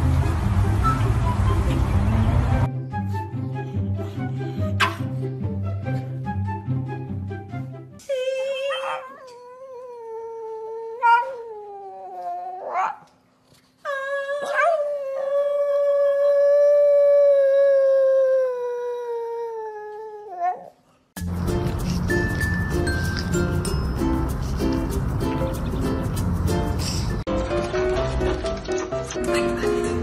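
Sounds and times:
dog yipping: 8.6 - 9.3, 11.0 - 11.4, 12.5 - 13.1
dog howling: 8.6 - 13.0, 13.9 - 20.7.

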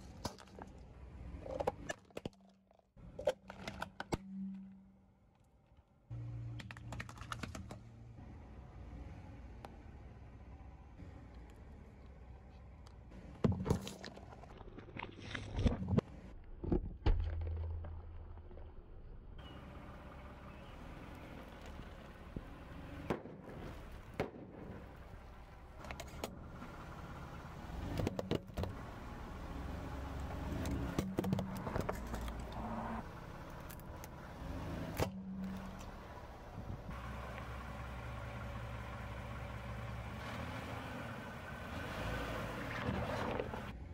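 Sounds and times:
low engine rumble: 19.4 - 43.9.

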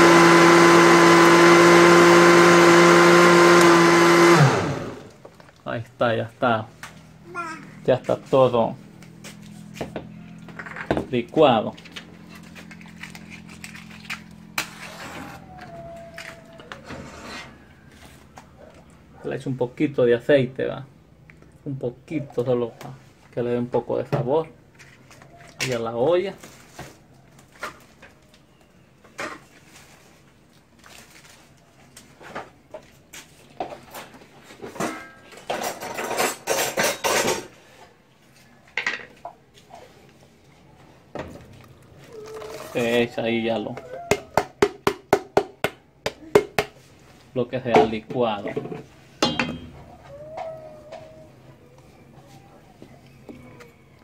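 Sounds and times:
short sharp scrape: 14.6 - 15.4
pots and utensils clattering: 34.6 - 37.6, 47.8 - 49.8.

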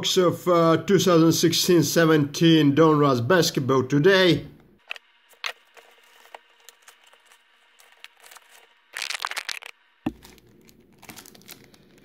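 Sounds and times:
foil packs crinkling: 5.3 - 12.0.

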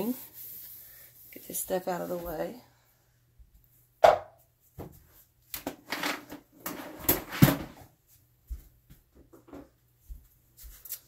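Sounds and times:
objects clattering and rustling: 5.6 - 7.9.

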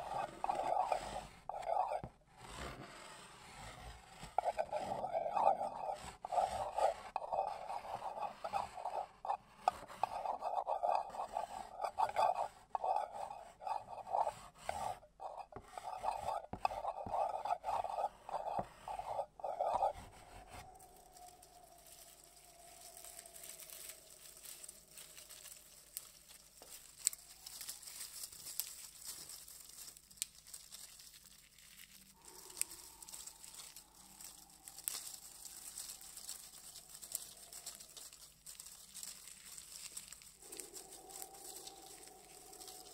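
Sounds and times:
chalk scraping on a board: 0.0 - 20.7
fine crackling: 20.5 - 42.9.

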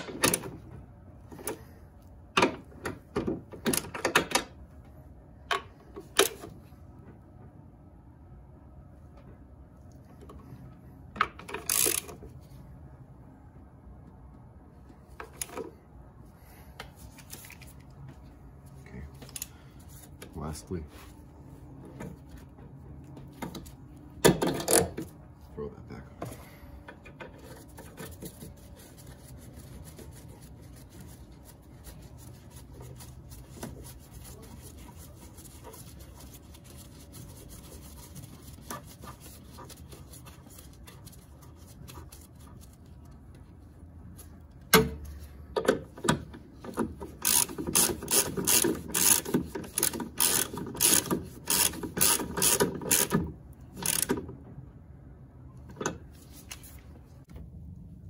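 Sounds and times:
faint handling noises: 4.6 - 47.9, 53.8 - 57.9
ratchet clicks: 11.5 - 12.1, 47.2 - 54.2.

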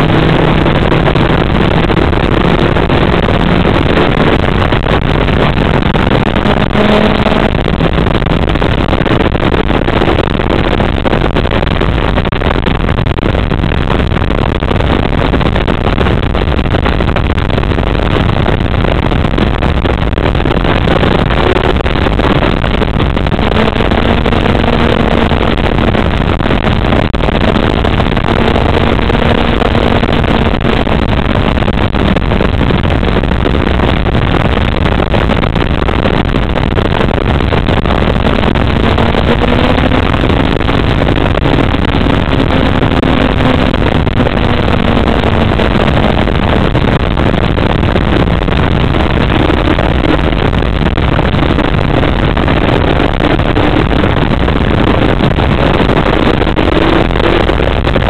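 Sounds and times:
motorcycle engine revving: 0.0 - 8.5, 23.1 - 31.6, 37.4 - 47.2, 54.8 - 57.8
wind noise: 0.0 - 58.0.

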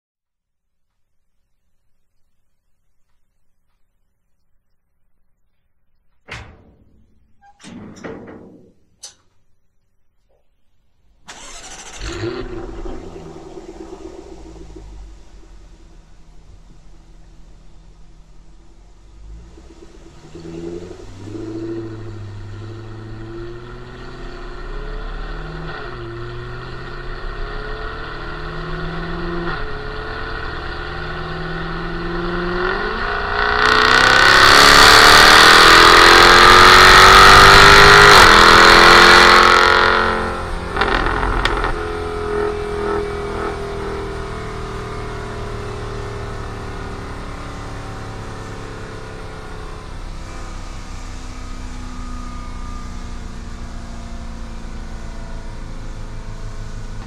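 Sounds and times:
car engine revving: 11.0 - 57.0
exhaust pops and crackles: 11.1 - 22.2, 33.2 - 43.6.

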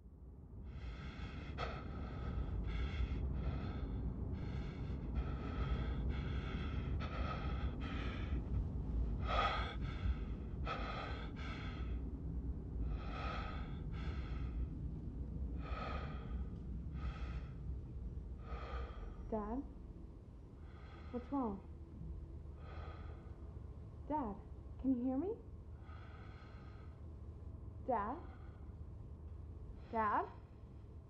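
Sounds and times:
man breathing hard: 0.7 - 12.1, 12.8 - 15.0, 15.6 - 19.3, 20.5 - 21.2, 22.5 - 23.5, 25.8 - 27.1.

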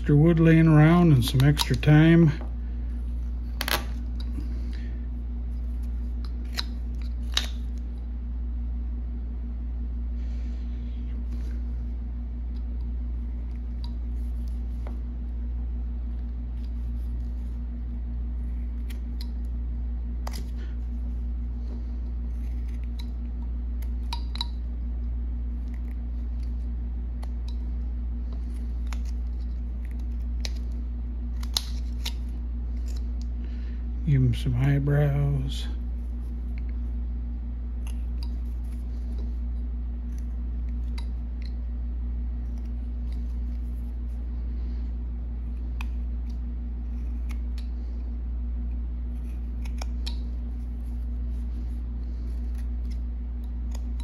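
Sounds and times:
low hum: 0.0 - 54.0
knife cutting wood chips: 49.1 - 50.9.

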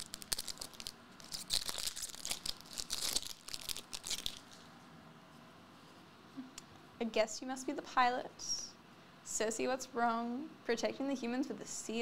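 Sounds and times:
foil wrapper crinkling and tearing: 0.0 - 4.7.

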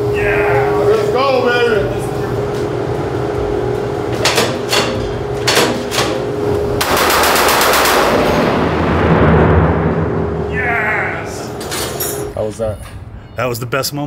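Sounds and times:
reverberant wash: 6.3 - 12.3
machine gun bursts: 6.8 - 8.4.

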